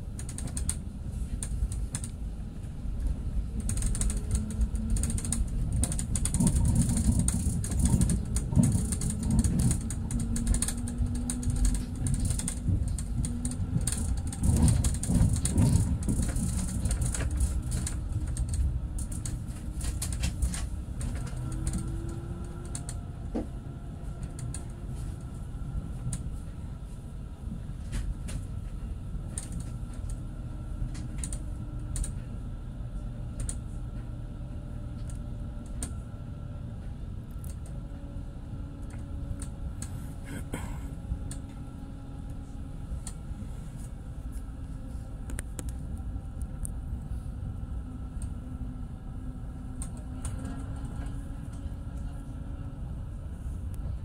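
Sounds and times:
tram rumbling: 0:00.0 - 0:54.0
light clicks and rattles: 0:00.1 - 0:02.2, 0:03.0 - 0:23.5, 0:24.2 - 0:25.3, 0:27.8 - 0:30.2.

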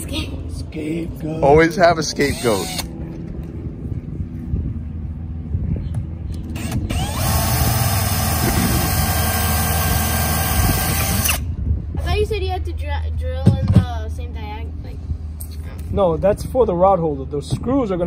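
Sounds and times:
low rumble: 0:00.0 - 0:09.1, 0:10.6 - 0:18.0
cordless drill boring: 0:02.2 - 0:02.9, 0:06.6 - 0:11.4.

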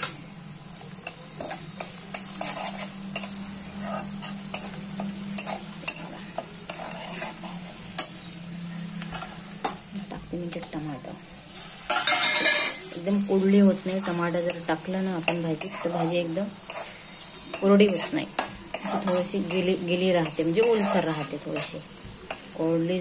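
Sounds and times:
oil sizzling: 0:00.0 - 0:23.0
spatula scraping metal pan: 0:01.4 - 0:09.8, 0:11.5 - 0:13.1, 0:13.7 - 0:22.5
spatula clicking against pan: 0:21.6 - 0:22.6.

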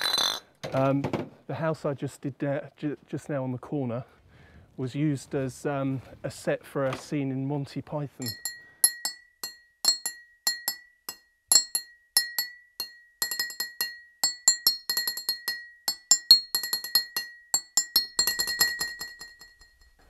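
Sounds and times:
glass bottles clinking: 0:08.2 - 0:20.0
steady high ringing tone: 0:08.2 - 0:20.0.

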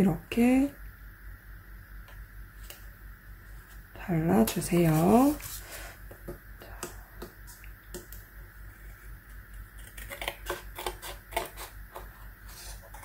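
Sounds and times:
scissors cutting paper: 0:09.6 - 0:13.0.

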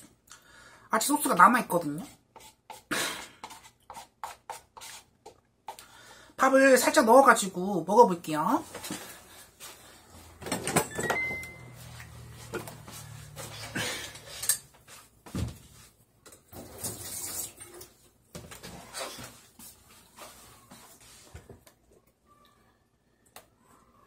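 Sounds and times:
kitchen clatter and knocks: 0:10.4 - 0:11.4.

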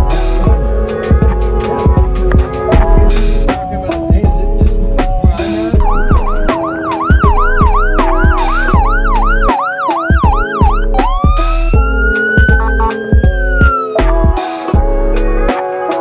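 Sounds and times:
background music with steady beat: 0:00.0 - 0:16.0
electronic siren yelp and wail: 0:05.8 - 0:14.0.

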